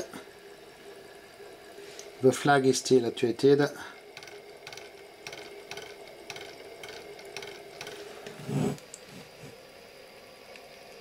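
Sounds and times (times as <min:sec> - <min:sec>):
gear train clicking: 0:04.1 - 0:08.1.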